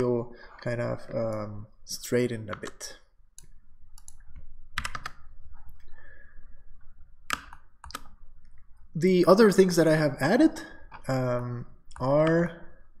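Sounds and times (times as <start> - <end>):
mouse clicks: 3.4 - 5.2, 7.3 - 8.6
keyboard keystrokes: 4.8 - 5.2.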